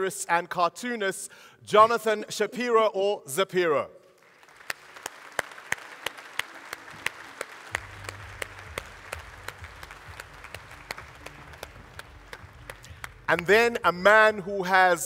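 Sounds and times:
large audience applauding: 0:04.2 - 0:13.8
sharp individual claps: 0:04.4 - 0:13.8.

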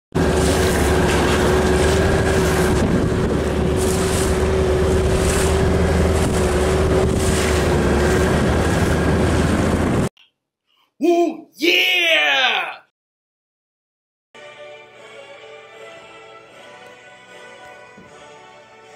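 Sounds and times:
boat motor running with whine: 0:00.1 - 0:10.1
water splashing against hull: 0:00.1 - 0:10.1
wind buffeting microphone: 0:00.2 - 0:10.1.

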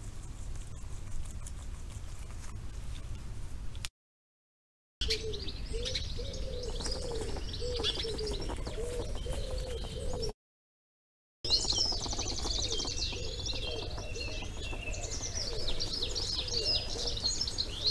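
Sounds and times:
pigeon cooing: 0:05.0 - 0:10.4, 0:11.5 - 0:17.9
small birds chirping and trilling: 0:05.0 - 0:10.4, 0:11.5 - 0:17.9.

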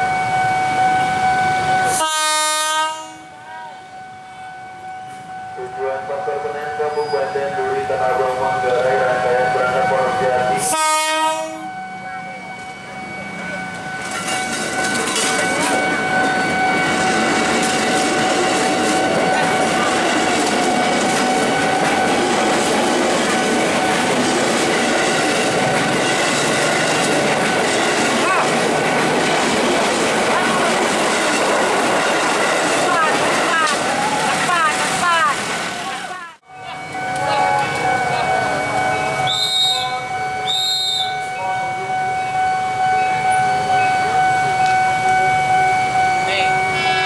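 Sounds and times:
electronic crossing alarm tone: 0:00.0 - 0:31.5, 0:36.4 - 0:47.0
train wheels clattering on rails: 0:13.7 - 0:35.9
shrill hand whistle blasts: 0:39.2 - 0:41.5.

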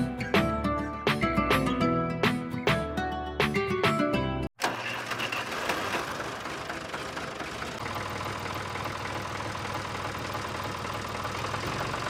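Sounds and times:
toy tractor engine idling: 0:04.6 - 0:12.0.

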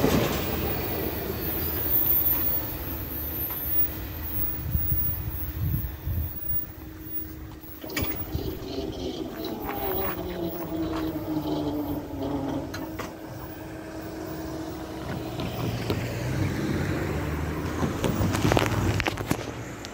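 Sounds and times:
crossing gate mechanism hum: 0:00.0 - 0:16.6
car engines: 0:00.0 - 0:19.9.

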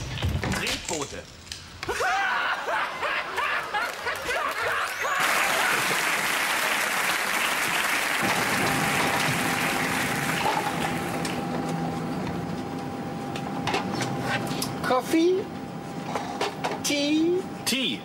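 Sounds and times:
thin constant whine: 0:00.0 - 0:18.0
audience applause: 0:02.1 - 0:11.4.

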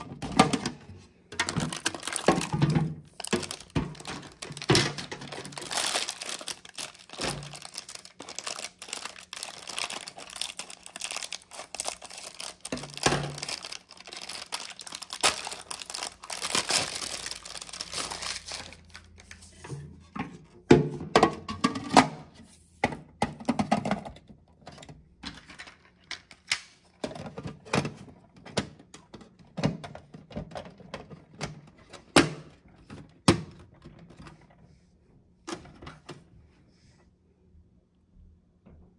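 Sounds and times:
wrapper crinkling: 0:01.4 - 0:19.4.

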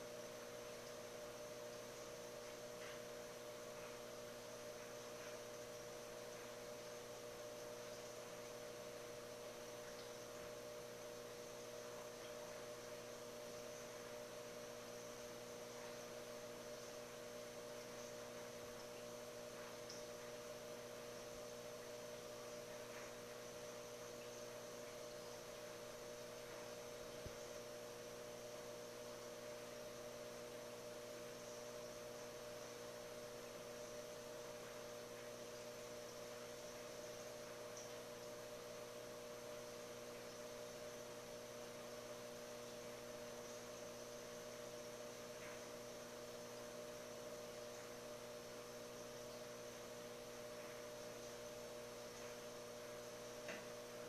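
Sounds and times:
aquarium equipment hum: 0:00.0 - 0:54.0.

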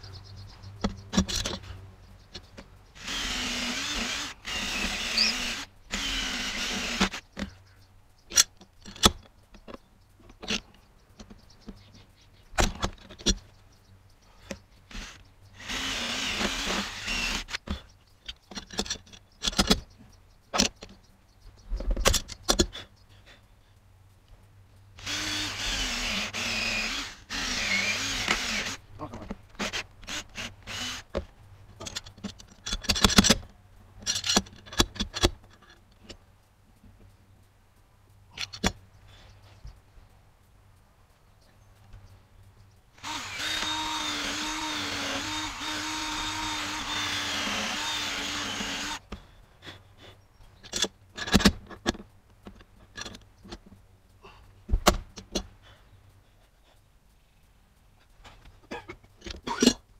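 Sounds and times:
cordless drill boring into wood: 0:03.0 - 0:07.2, 0:14.9 - 0:17.6, 0:25.0 - 0:28.8, 0:29.6 - 0:31.1, 0:43.0 - 0:49.1.

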